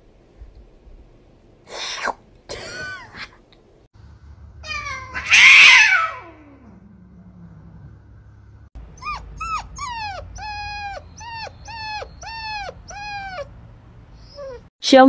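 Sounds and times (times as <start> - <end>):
cat yowling with hiss: 4.6 - 6.6.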